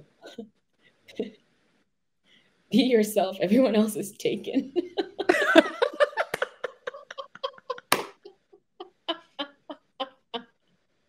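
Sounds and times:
women laughing: 4.6 - 10.6.

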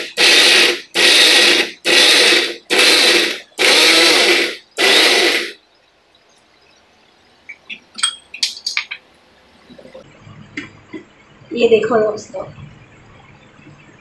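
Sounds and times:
mixer grinder bursts: 0.0 - 5.6.

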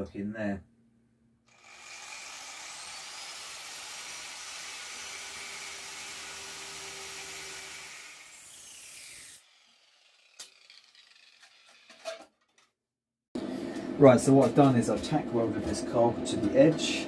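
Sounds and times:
angle grinder cutting metal: 1.5 - 12.2.

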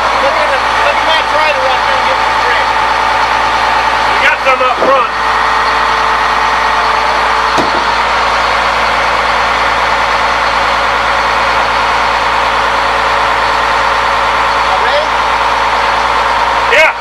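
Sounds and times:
truck engine idling: 0.0 - 17.0
brief knock: 7.6 - 8.0.

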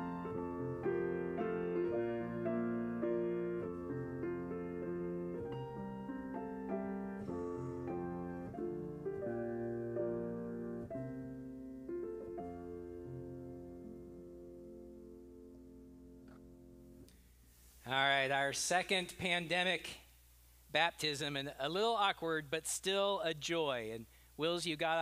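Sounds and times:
slow gentle piano piece: 0.0 - 17.1.

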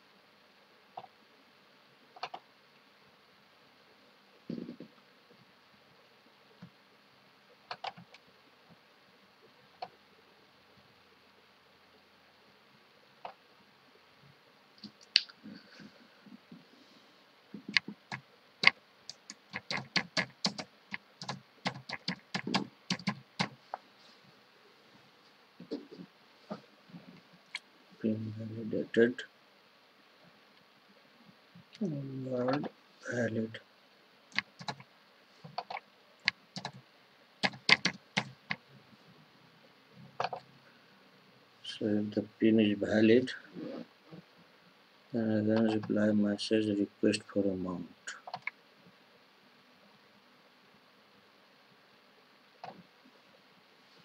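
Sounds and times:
computer keyboard typing: 7.7 - 8.0, 17.7 - 23.6, 34.3 - 34.8, 35.5 - 36.8, 37.4 - 38.6.

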